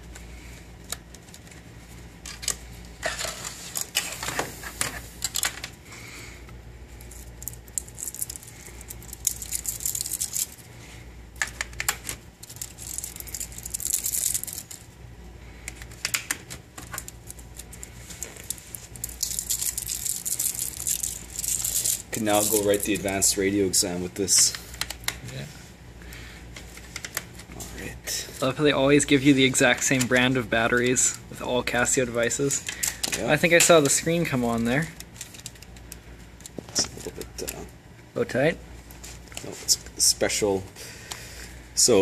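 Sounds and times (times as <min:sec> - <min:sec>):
plastic rustling: 0:06.9 - 0:25.4, 0:26.6 - 0:37.7.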